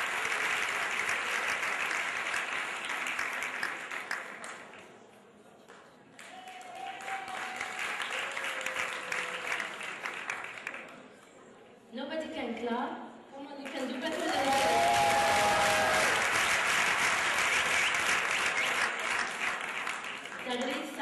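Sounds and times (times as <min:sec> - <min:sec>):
audience applauding: 0:00.0 - 0:04.8, 0:06.2 - 0:11.1, 0:14.0 - 0:21.0.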